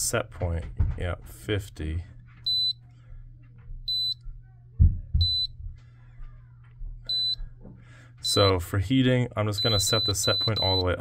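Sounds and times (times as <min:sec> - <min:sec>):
keypad beeps: 0:02.4 - 0:02.8, 0:03.9 - 0:04.2, 0:05.2 - 0:05.6, 0:07.1 - 0:07.4, 0:09.6 - 0:11.0.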